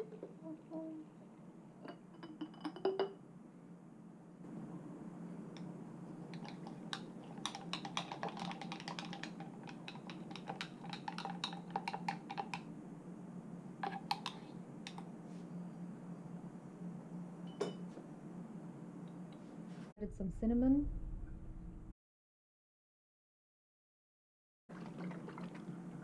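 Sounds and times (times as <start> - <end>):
stick tapping against glass jar: 1.8 - 3.2, 6.4 - 12.7.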